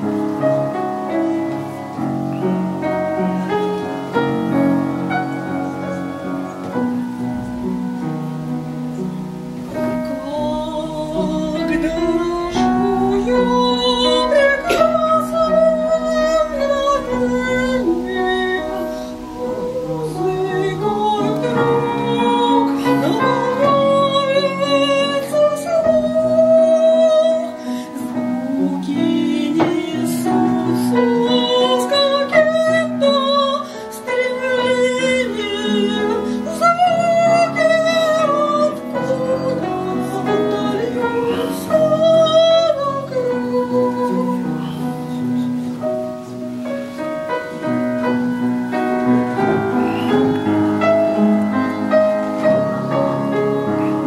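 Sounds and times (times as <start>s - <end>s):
upright piano: 0.0s - 54.0s
woman singing with vibrato: 9.4s - 45.7s.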